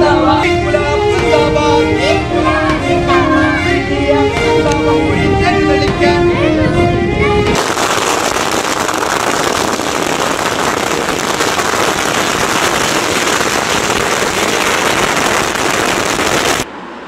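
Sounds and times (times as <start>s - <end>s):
firecrackers bursting: 7.6s - 16.7s.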